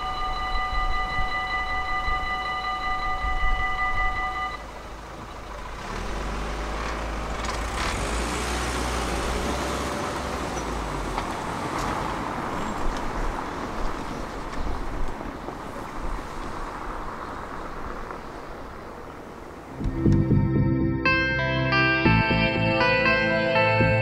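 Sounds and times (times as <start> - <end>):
level crossing warning bell: 0.0 - 4.8
cars driving past: 4.6 - 20.2.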